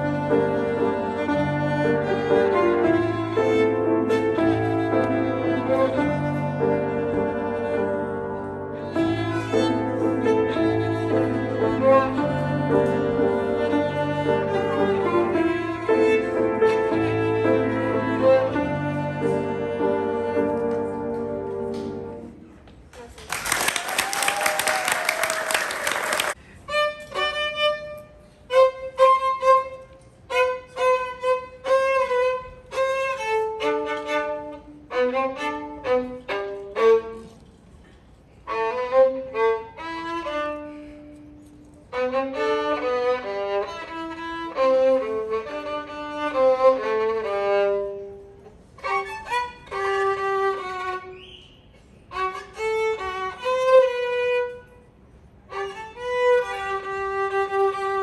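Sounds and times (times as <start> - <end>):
solo violin melody: 0.0 - 22.5, 26.3 - 37.8, 38.4 - 58.0
applause: 23.0 - 26.4.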